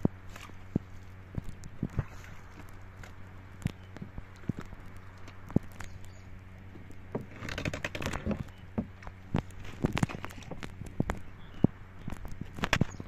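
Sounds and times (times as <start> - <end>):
pole knocking wooden hull: 6.8 - 11.2.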